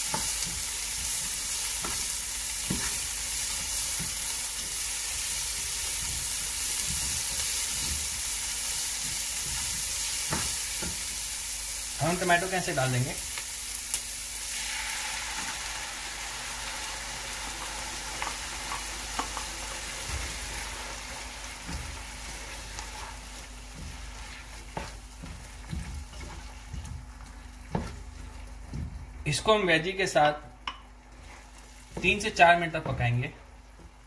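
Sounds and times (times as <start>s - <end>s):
vegetables sizzling in oil: 0.0s - 30.0s, 30.9s - 34.0s
spatula scraping pan: 20.0s - 26.9s.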